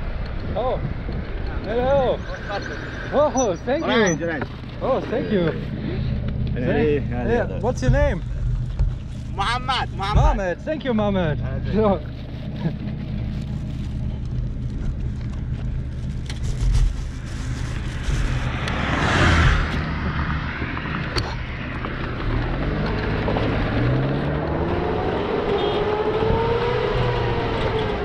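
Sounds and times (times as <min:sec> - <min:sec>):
idling engine hum: 0:00.0 - 0:28.0
car passing by: 0:17.6 - 0:21.6
engine revving up: 0:18.0 - 0:20.4, 0:22.2 - 0:28.0.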